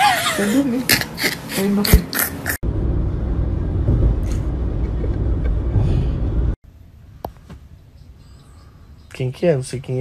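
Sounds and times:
car cabin road and engine rumble: 0:00.0 - 0:10.0.

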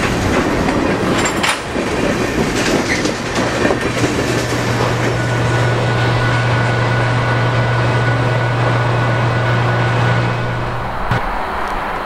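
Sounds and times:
outdoor rushing noise: 0:00.0 - 0:12.0
low engine drone: 0:04.5 - 0:12.0
faint high whine: 0:05.0 - 0:12.0.

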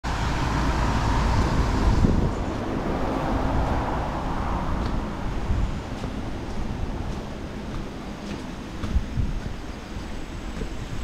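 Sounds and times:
strong wind buffeting microphone: 0:00.1 - 0:11.0
heavy low thumps: 0:08.8 - 0:09.6.

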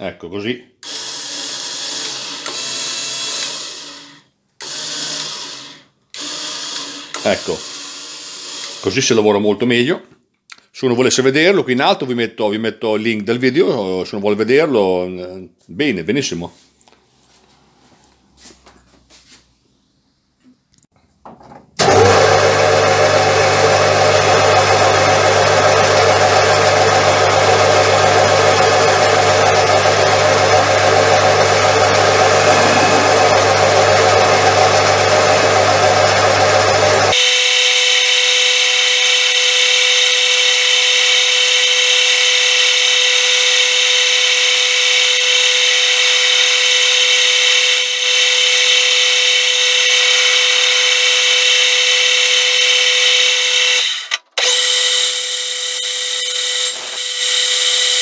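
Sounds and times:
metal lathe running: 0:21.8 - 0:37.2, 0:49.6 - 0:58.0
low hum: 0:30.4 - 0:36.0
mechanical whine: 0:30.6 - 0:36.4, 0:54.9 - 0:57.0.

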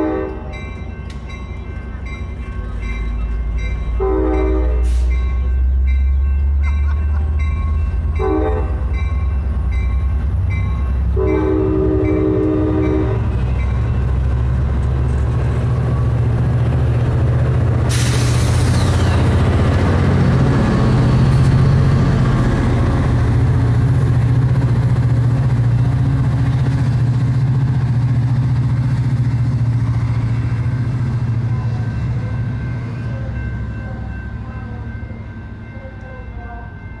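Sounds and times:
diesel locomotive droning: 0:00.0 - 0:37.0
train wheels rolling on rails: 0:08.8 - 0:35.7.

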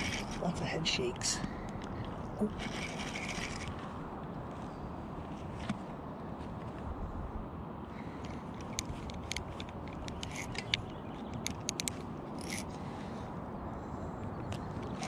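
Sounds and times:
fishing reel clicking: 0:00.0 - 0:00.4, 0:02.5 - 0:03.8, 0:10.1 - 0:10.8, 0:11.4 - 0:12.7
steady low rumble: 0:00.0 - 0:15.0.

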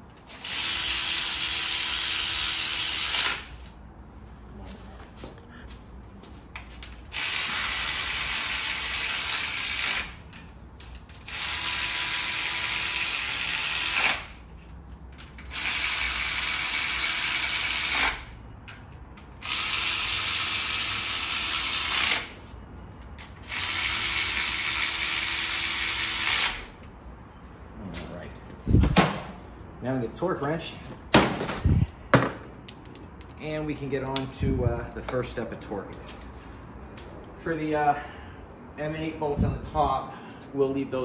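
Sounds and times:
power ratchet running: 0:00.3 - 0:03.8, 0:07.1 - 0:10.5, 0:11.1 - 0:14.5, 0:15.3 - 0:18.3, 0:19.2 - 0:22.4, 0:23.2 - 0:26.8.

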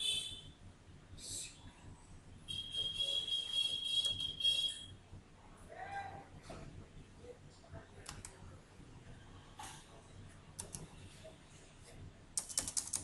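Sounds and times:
low steady hum: 0:00.0 - 0:13.0
computer mouse and keyboard clicks: 0:08.0 - 0:08.4, 0:10.6 - 0:11.0, 0:12.4 - 0:13.0.

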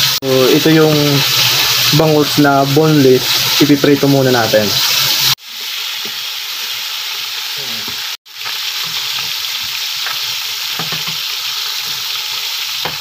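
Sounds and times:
fish sizzling in hot oil: 0:00.0 - 0:13.0.

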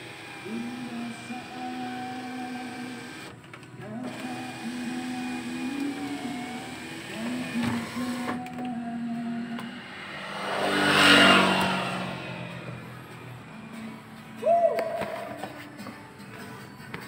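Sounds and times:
electric motor whirring: 0:00.0 - 0:13.3
rushing noise: 0:09.3 - 0:13.6.

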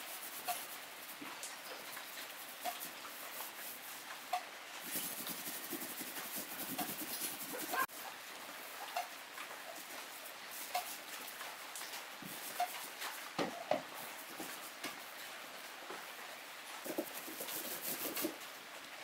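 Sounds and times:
paintbrush scrubbing on wood: 0:00.0 - 0:07.9, 0:09.8 - 0:11.5, 0:12.2 - 0:13.3, 0:14.0 - 0:15.0, 0:16.8 - 0:18.4
brush knocking against box: 0:04.8 - 0:07.8.

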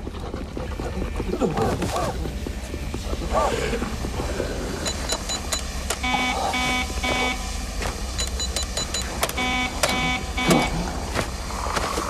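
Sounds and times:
low steady rumble: 0:00.0 - 0:12.0
low buzzing beeps: 0:04.7 - 0:11.3.

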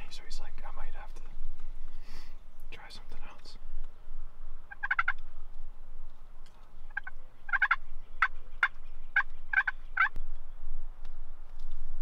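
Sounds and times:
turkey gobbling: 0:04.7 - 0:05.2, 0:06.9 - 0:10.2.

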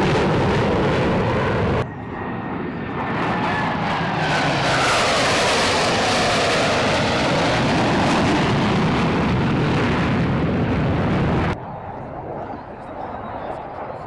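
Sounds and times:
jet engines roaring: 0:00.0 - 0:14.0.

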